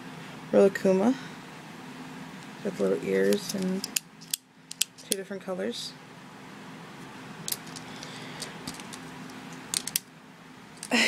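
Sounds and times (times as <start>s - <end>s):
pens clicking on a table: 7.5s - 9.0s, 9.7s - 10.0s.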